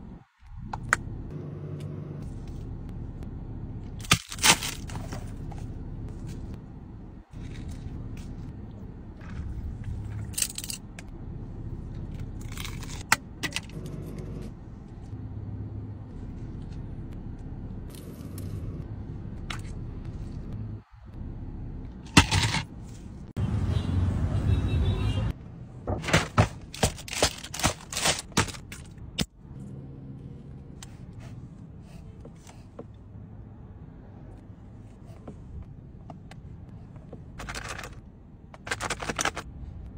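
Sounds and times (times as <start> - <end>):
plastic and food wrappers crinkling: 26.8 - 28.7.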